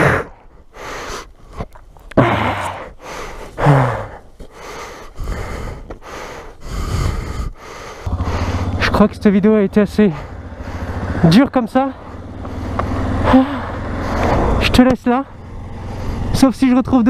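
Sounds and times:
man breathing hard and sighing: 0.0 - 8.8, 10.1 - 11.1, 15.7 - 16.3
man groaning: 2.1 - 2.9, 3.6 - 4.2, 13.2 - 13.8.

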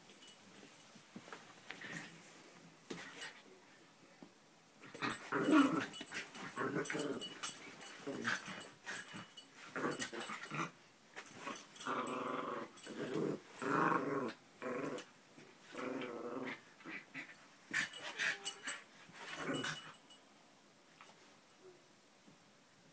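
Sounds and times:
small dogs growling: 4.9 - 7.4, 8.0 - 10.8, 11.4 - 15.1, 15.7 - 18.6, 19.3 - 19.8.

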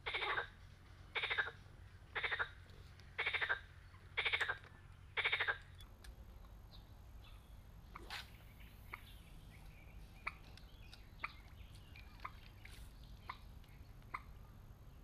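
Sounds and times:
frog croaking: 0.0 - 0.5, 1.2 - 2.6, 3.2 - 4.6, 5.2 - 5.7.

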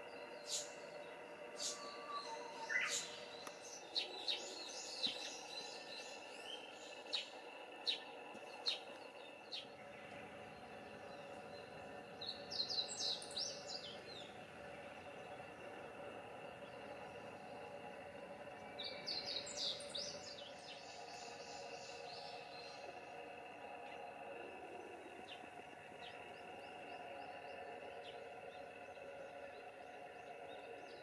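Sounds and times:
birds chirping: 0.0 - 31.0
faint steady drone: 0.0 - 31.0.

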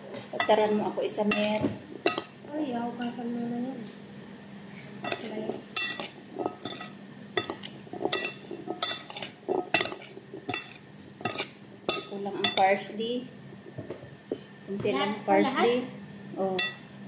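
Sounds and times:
metal spoons clinking: 4.8 - 13.1, 16.6 - 16.9.

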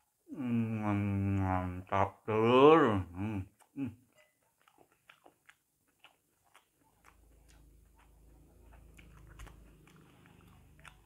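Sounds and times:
sticky clicks of fruit chewed: 3.4 - 11.0.

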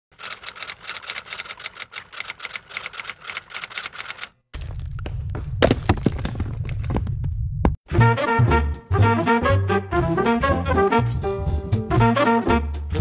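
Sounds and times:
sharp clicks: 0.2 - 4.4.

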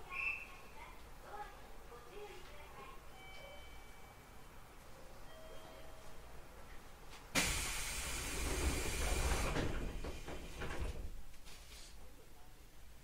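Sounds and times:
train doors sliding: 7.3 - 11.2
loud air hiss: 7.4 - 9.8.

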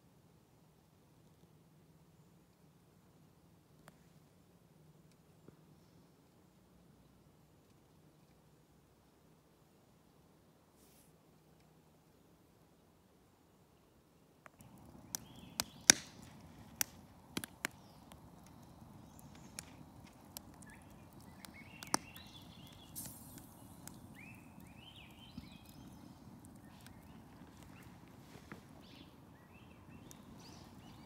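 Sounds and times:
wood fire crackling and popping: 14.4 - 31.0
birds calling: 14.8 - 31.0.

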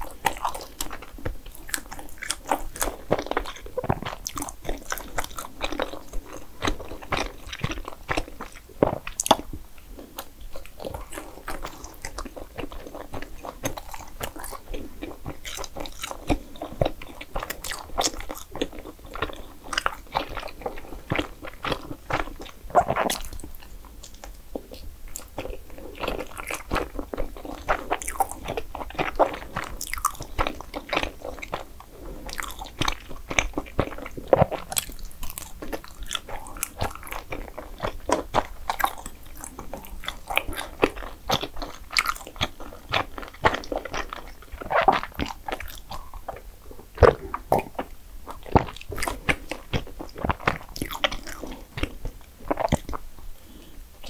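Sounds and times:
person chewing food: 0.0 - 54.0
soft mouth sounds: 0.0 - 54.0.

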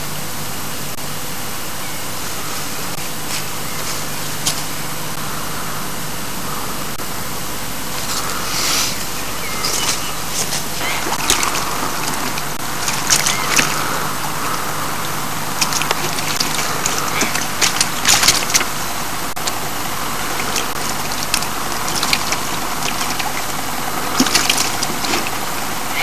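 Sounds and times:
low hum: 0.0 - 26.0
steady hiss: 0.0 - 26.0
water sloshing: 7.9 - 26.0.

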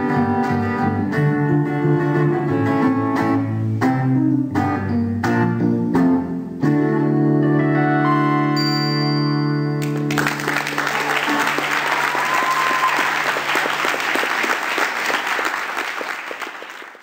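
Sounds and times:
electric guitar and keyboard chord: 0.0 - 10.2
audience applauding: 9.8 - 17.0.

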